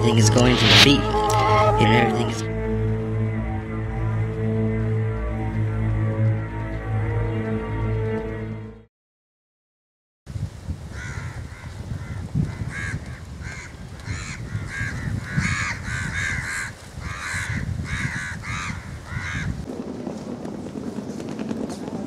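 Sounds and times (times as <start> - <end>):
wind rumble on microphone: 10.3 - 22.0
crows cawing: 11.0 - 19.6.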